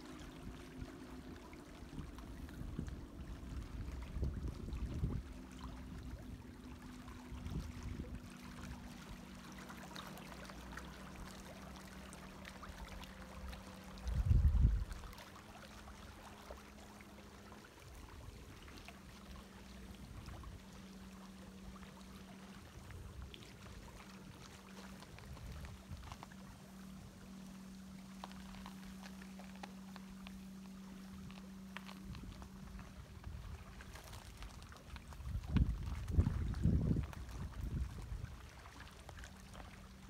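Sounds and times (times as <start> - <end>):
small waves lapping on rocks: 0.0 - 40.0
steady low hum: 0.0 - 40.0.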